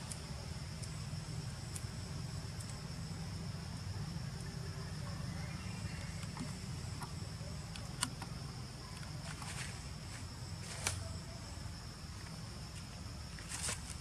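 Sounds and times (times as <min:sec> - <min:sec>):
constant low rumble: 0:00.0 - 0:14.0.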